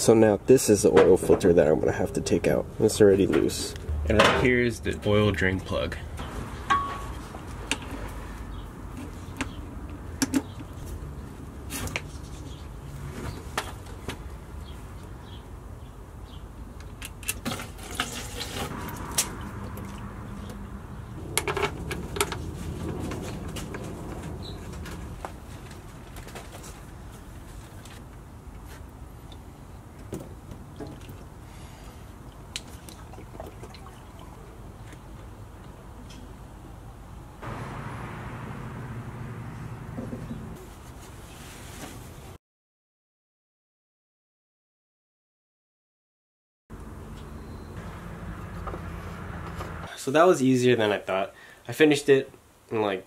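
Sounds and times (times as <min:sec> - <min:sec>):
low steady rumble: 0:37.4 - 0:40.6.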